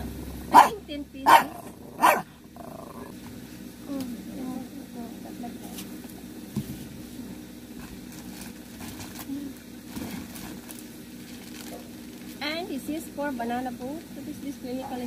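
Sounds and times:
steady low hum: 0.0 - 15.0
plastic wrapping rustling: 7.8 - 12.4.

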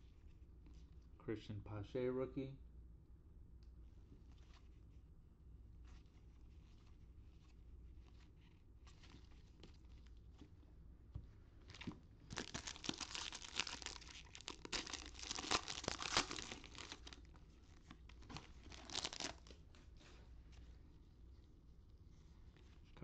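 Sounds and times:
foil wrapper tearing and crinkling: 11.8 - 19.6.

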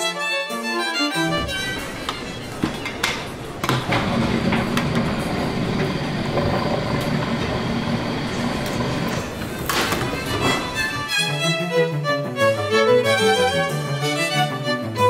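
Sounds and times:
mixer motor and blades running: 1.3 - 11.1.

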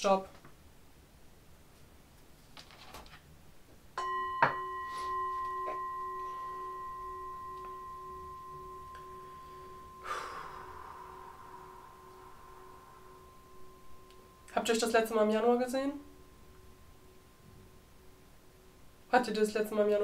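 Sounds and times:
metal chime ringing: 4.0 - 19.2
breathy rush of noise: 6.0 - 14.8.

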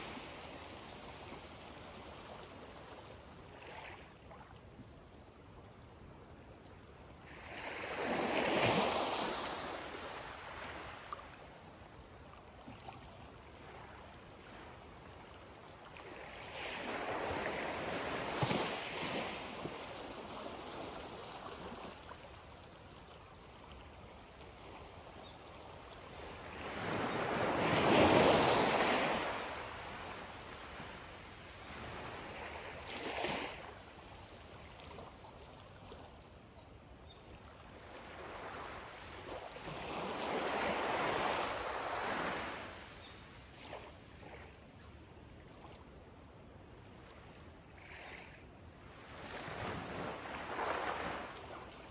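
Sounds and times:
small waves lapping on sand: 0.0 - 51.9.

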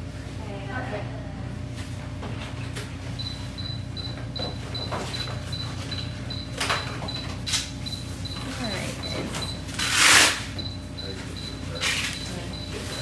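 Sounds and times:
steady equipment hum: 0.0 - 13.0
short high-pitched beeps: 7.1 - 13.0.

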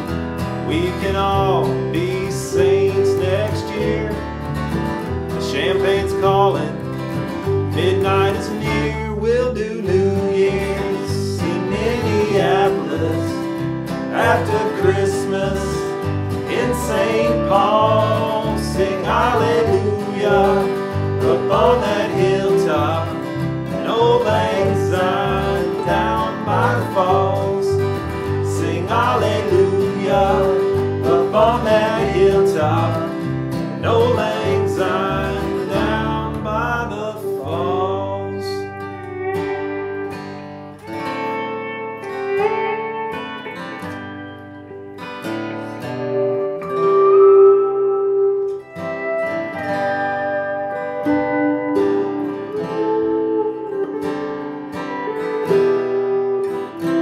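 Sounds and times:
walking bass line: 0.0 - 38.2
acoustic string band country tune: 0.0 - 57.0
sliding lead melody: 0.0 - 57.0.

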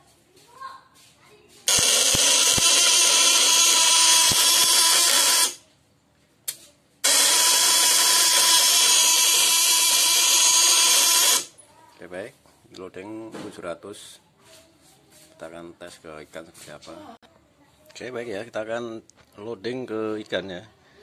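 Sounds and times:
loud buzzing hiss with whine: 1.7 - 5.6, 7.0 - 11.5.

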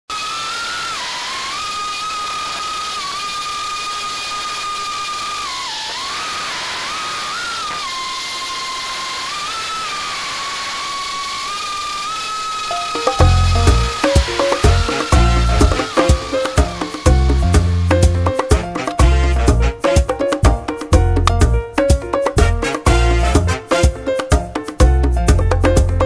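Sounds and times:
drone motors whining: 0.1 - 18.6.

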